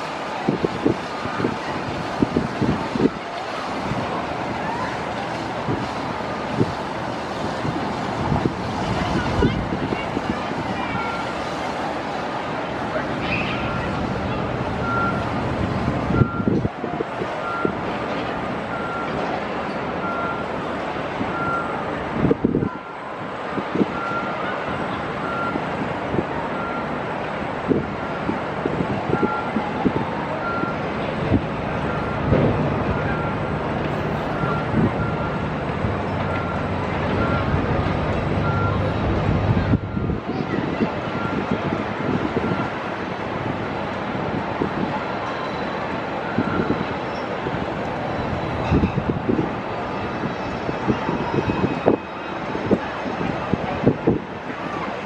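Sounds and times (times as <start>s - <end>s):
city traffic hiss: 0.0s - 55.0s
wind buffeting microphone: 0.0s - 55.0s
reversing alarm beeping: 14.8s - 15.4s, 16.1s - 16.6s, 17.4s - 17.8s, 18.7s - 19.2s, 20.0s - 20.6s, 21.3s - 21.8s, 23.9s - 24.4s, 25.2s - 25.7s, 26.6s - 27.0s, 29.1s - 29.6s, 30.3s - 30.9s, 31.8s - 39.0s, 39.7s - 40.2s, 41.1s - 41.6s, 45.1s - 47.4s.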